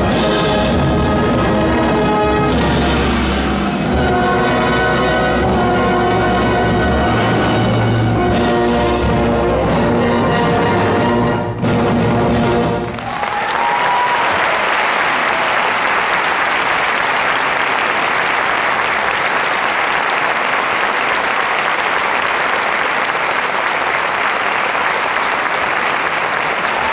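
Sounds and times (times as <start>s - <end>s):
audience applauding: 12.7s - 26.9s.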